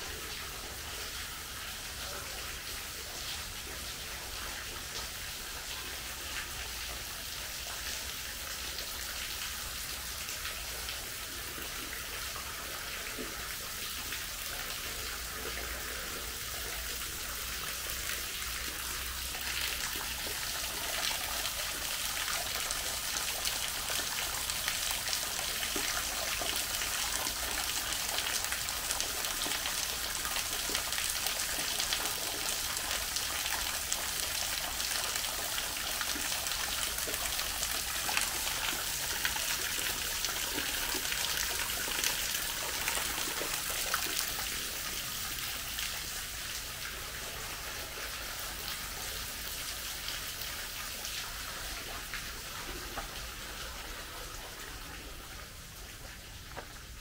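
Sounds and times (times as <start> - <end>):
small waterfall hissing: 0.0 - 57.0.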